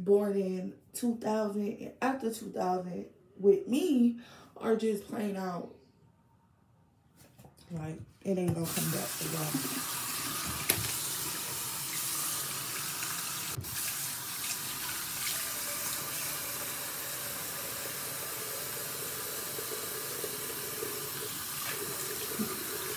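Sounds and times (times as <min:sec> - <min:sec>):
face rinsing with hands: 0:08.6 - 0:16.8
tap water running into sink: 0:08.6 - 0:22.9.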